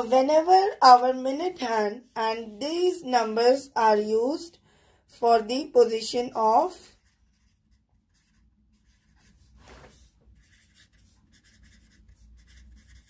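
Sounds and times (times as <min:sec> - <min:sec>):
marker writing on paper: 0:06.6 - 0:13.0.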